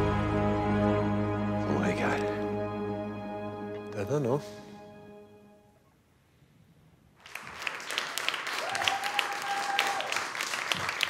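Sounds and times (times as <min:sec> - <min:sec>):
steady high tone: 0:00.0 - 0:05.9
audience applauding: 0:07.2 - 0:11.0.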